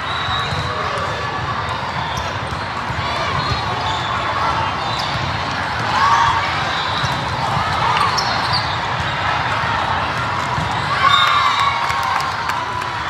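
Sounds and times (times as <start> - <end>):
crowd chatter: 0.0 - 13.0
shoes squeaking on courts: 7.9 - 9.0.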